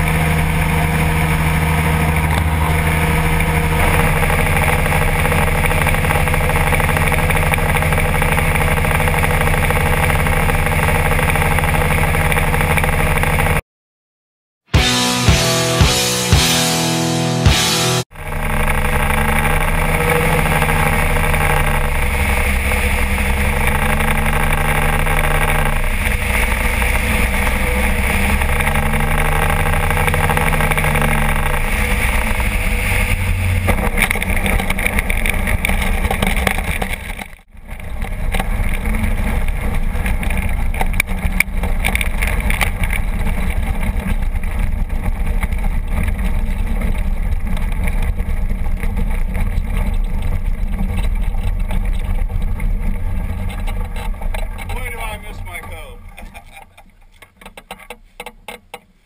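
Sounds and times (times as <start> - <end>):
light aircraft engine and propeller: 0.0 - 13.6.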